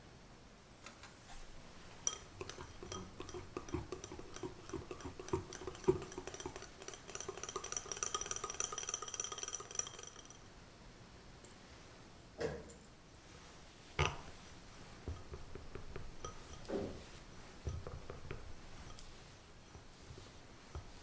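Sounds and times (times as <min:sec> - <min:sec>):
whisk clinking against glass bowl: 0:02.0 - 0:10.5, 0:15.0 - 0:21.0.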